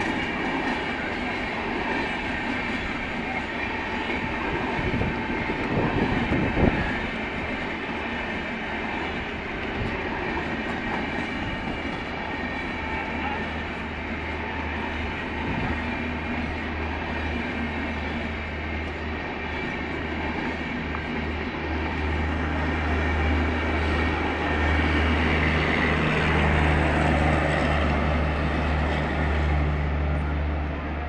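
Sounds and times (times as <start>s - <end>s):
train wheels rumbling on rail: 0.0s - 31.0s.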